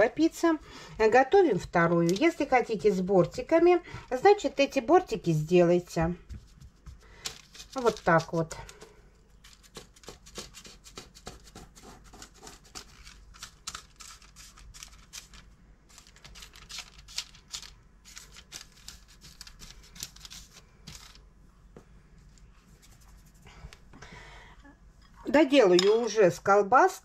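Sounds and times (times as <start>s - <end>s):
baking paper crackling: 6.2s - 21.3s.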